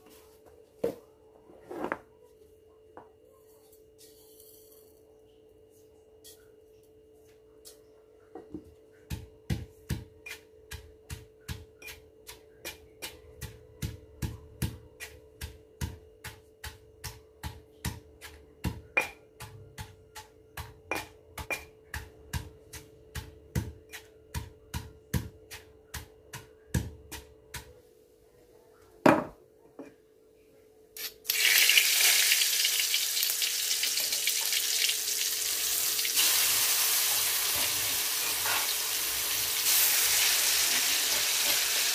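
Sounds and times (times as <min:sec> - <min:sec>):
stone pestle pounding in mortar: 0:09.1 - 0:27.8
paste sizzling in hot oil: 0:31.0 - 0:41.9.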